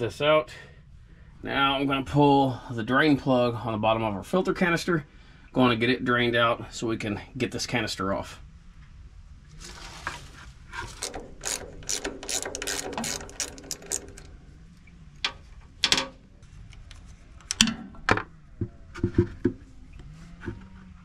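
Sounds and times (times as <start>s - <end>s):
socket ratchet clicking: 10.9s - 14.3s.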